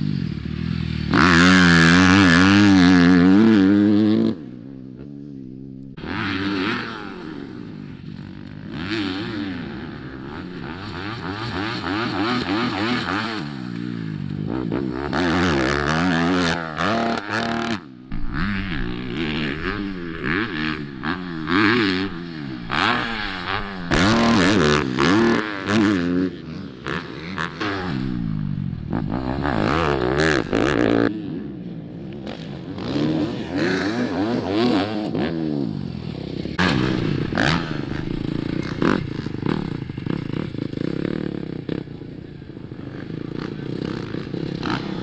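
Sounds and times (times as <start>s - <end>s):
motocross bike engine revving: 0.0s - 45.0s.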